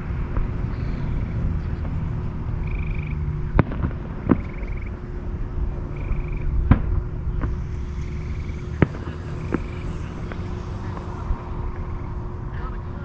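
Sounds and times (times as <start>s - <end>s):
background rumble: 0.0s - 13.0s
distant fireworks bangs: 0.0s - 13.0s
faint high pulsed trill: 4.3s - 13.0s.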